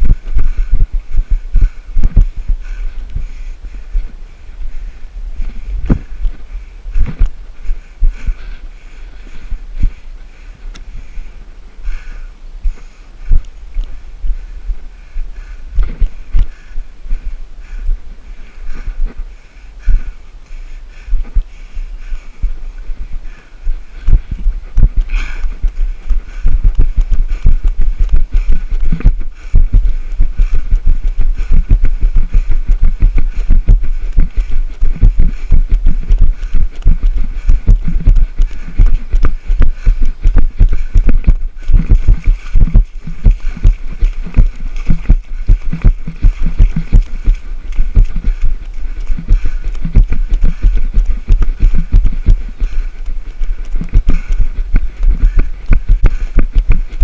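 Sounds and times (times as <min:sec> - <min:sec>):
running footsteps thumping: 0:00.0 - 0:03.4, 0:05.4 - 0:08.6, 0:15.8 - 0:16.5, 0:23.7 - 0:57.0.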